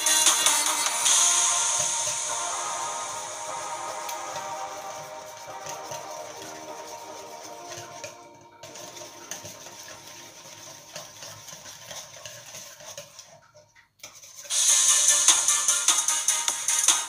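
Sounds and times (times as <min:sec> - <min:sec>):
loud rhythmic music: 0:00.0 - 0:11.3, 0:14.5 - 0:17.0
whisk scraping metal bowl: 0:04.0 - 0:13.4.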